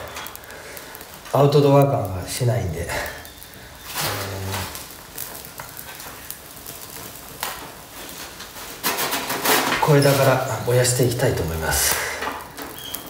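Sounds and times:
fire crackling and snapping: 0:00.0 - 0:13.0.

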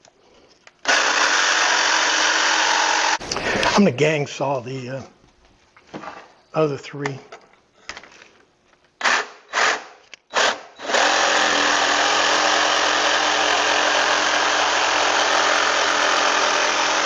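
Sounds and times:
jigsaw cutting plywood: 0:00.8 - 0:03.2, 0:09.0 - 0:17.0.

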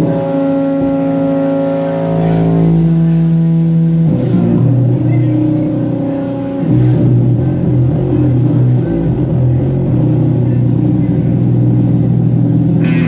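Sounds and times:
live band sustained chord: 0:00.0 - 0:09.8, 0:12.7 - 0:13.0.

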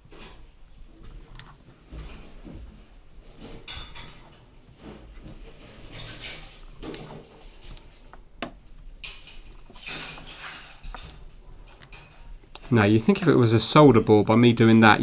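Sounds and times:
soft handling rustles and knocks: 0:00.0 - 0:13.3.

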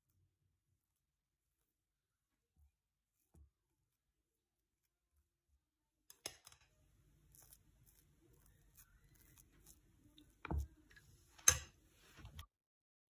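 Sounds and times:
knife scraping cream on bread: 0:07.2 - 0:11.5.

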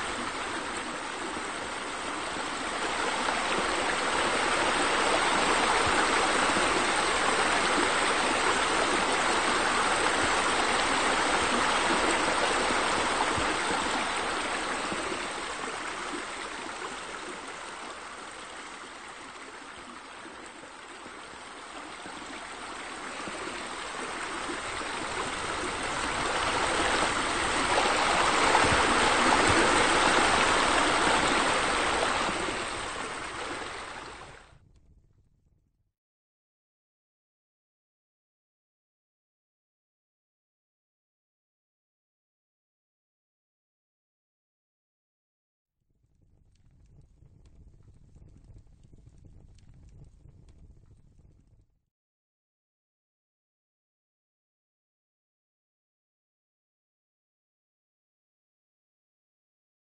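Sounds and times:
water jets splashing into pool: 0:00.0 - 0:34.4.

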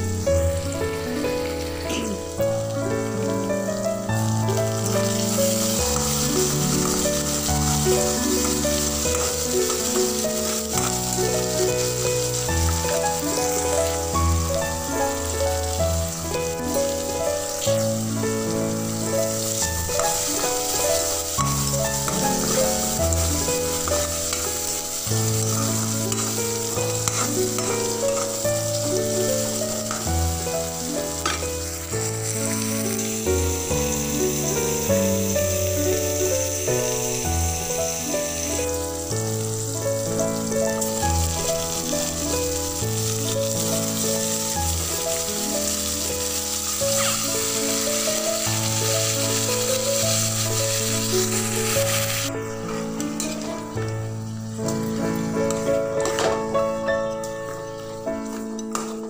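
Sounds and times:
instrumental background music: 0:00.0 - 0:59.0
vegetables sizzling in oil: 0:00.0 - 0:59.0
metal spoon stirring: 0:05.1 - 0:11.2, 0:25.2 - 0:28.4.

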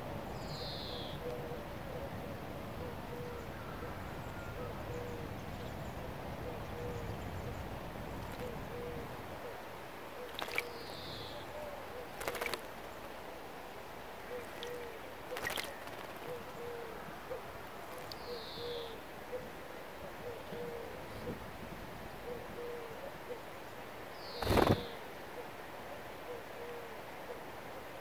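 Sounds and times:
low hoot: 0:00.4 - 0:05.4, 0:06.4 - 0:07.2, 0:08.4 - 0:12.2, 0:14.2 - 0:21.4, 0:22.2 - 0:23.5, 0:26.2 - 0:27.4
bird splashing in birdbath: 0:08.2 - 0:08.5, 0:10.3 - 0:10.9, 0:12.1 - 0:12.9, 0:14.4 - 0:16.3, 0:17.8 - 0:18.2.

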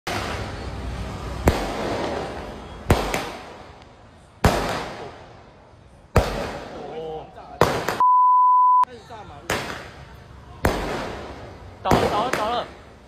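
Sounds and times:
fireworks bangs: 0:00.1 - 0:03.8, 0:04.4 - 0:07.0, 0:07.6 - 0:08.0, 0:10.6 - 0:13.0.

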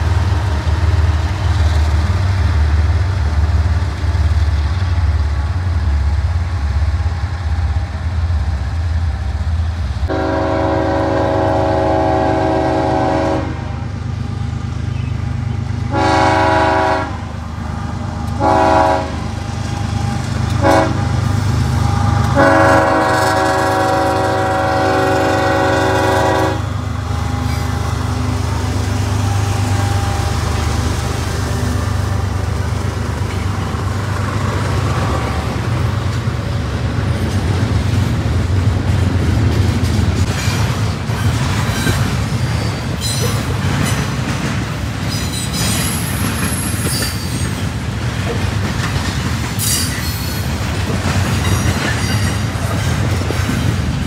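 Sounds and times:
locomotive engine rumbling: 0:00.0 - 0:54.0
train cars rolling past: 0:00.0 - 0:54.0
locomotive air horn blasts: 0:10.1 - 0:13.8, 0:15.9 - 0:17.4, 0:18.4 - 0:19.3, 0:20.6 - 0:21.1, 0:22.3 - 0:26.8.

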